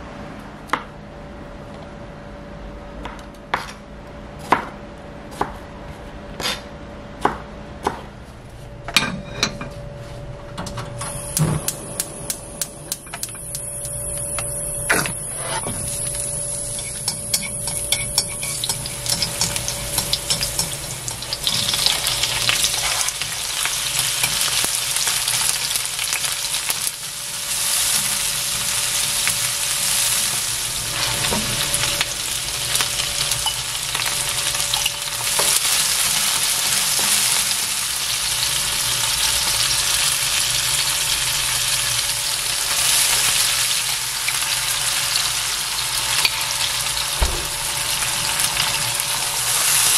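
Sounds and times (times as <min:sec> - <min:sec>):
food sizzling in oil: 0:13.3 - 0:49.9.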